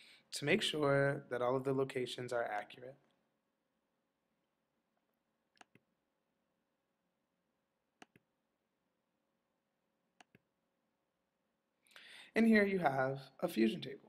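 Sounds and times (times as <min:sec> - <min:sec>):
computer mouse clicks: 0:05.5 - 0:05.9, 0:08.0 - 0:08.3, 0:10.2 - 0:10.5.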